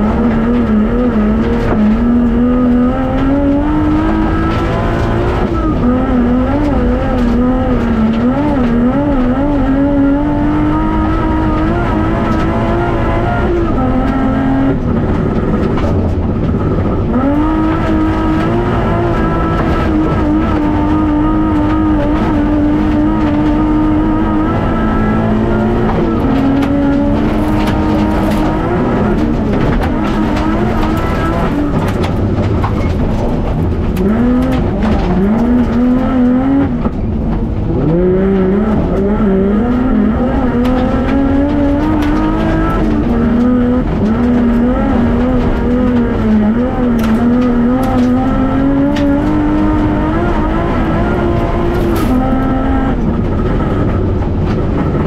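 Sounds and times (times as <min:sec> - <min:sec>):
car rumbling on dirt: 0:00.0 - 0:55.0
race car engine revving: 0:00.0 - 0:55.0.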